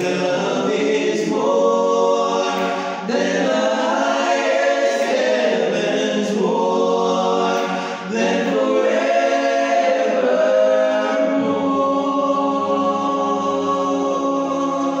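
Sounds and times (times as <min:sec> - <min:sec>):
male vocal group singing a cappella: 0:00.0 - 0:15.0.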